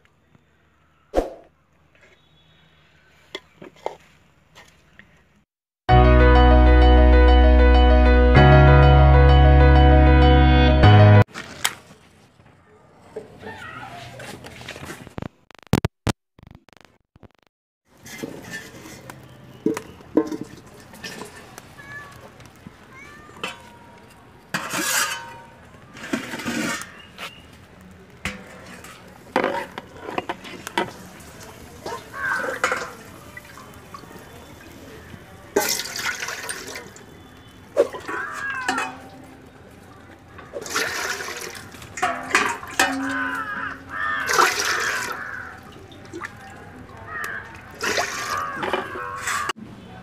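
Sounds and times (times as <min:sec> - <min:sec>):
water splashing and pouring: 0:18.0 - 0:22.2, 0:28.4 - 0:49.5.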